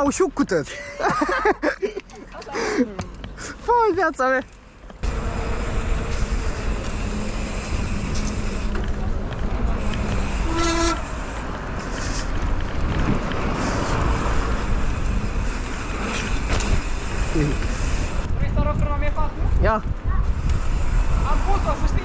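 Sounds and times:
wind and riding noise: 0:00.0 - 0:22.0
short horn toot: 0:10.3 - 0:11.2.

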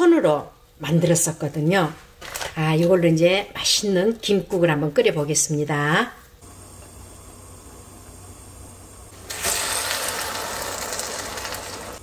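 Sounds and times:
seaweed sizzling in hot oil: 0:06.5 - 0:12.0.

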